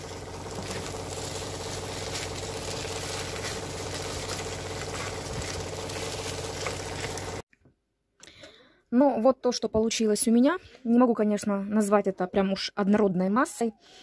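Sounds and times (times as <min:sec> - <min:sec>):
low hum: 0:00.0 - 0:07.4
spatula stirring in a pan: 0:00.0 - 0:07.4.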